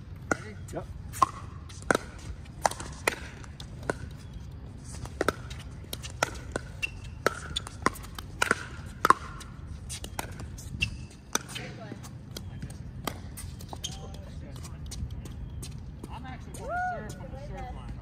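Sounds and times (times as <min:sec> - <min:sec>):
ball bouncing on hard court: 0:00.2 - 0:04.2, 0:05.0 - 0:14.0
paddles hitting plastic ball: 0:05.1 - 0:10.4.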